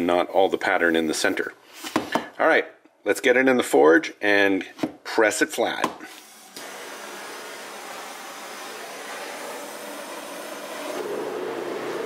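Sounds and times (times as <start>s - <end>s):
gas burner hissing: 6.1s - 12.0s.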